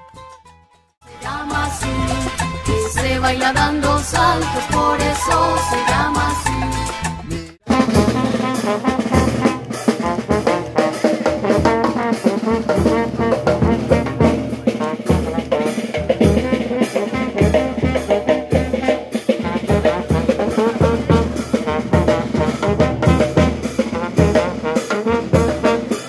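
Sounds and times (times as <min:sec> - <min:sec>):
bass drum beat: 0:01.1 - 0:26.0
snare drum: 0:04.2 - 0:26.0
trombone melody: 0:04.2 - 0:26.0.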